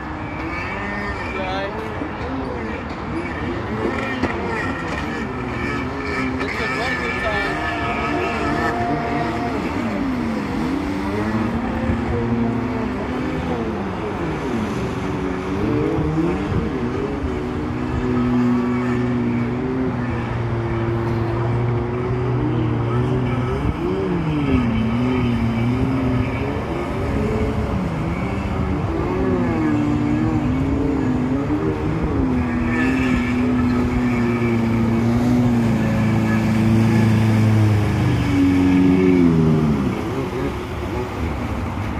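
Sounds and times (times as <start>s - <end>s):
jet ski engine revving: 0.2s - 41.9s
water rushing: 26.8s - 41.9s.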